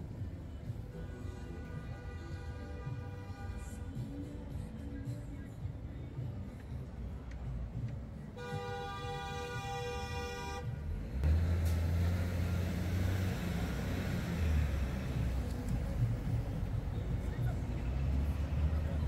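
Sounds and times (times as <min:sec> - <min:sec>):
street traffic: 0:00.0 - 0:19.0
vehicle horn honking: 0:08.4 - 0:10.8
vehicle engine running: 0:10.7 - 0:19.0.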